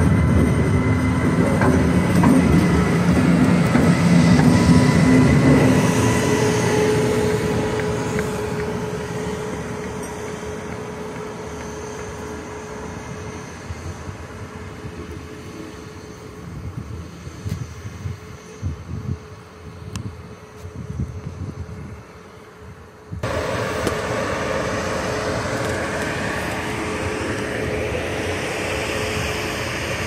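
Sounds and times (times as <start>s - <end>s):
train rumbling on rails: 0.0s - 30.0s
steady tone: 23.2s - 30.0s.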